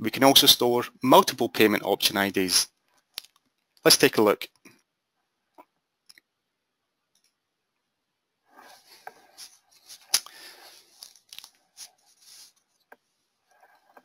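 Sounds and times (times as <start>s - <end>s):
rustling and crinkling: 8.5s - 14.0s.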